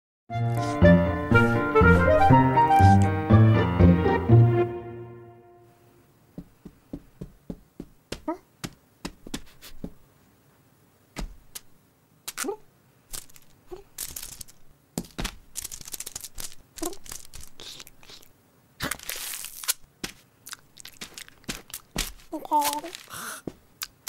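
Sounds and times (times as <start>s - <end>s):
light taps: 6.4s - 10.0s
sticky tape ripping off roll: 12.3s - 12.5s, 13.1s - 18.2s, 18.8s - 23.2s.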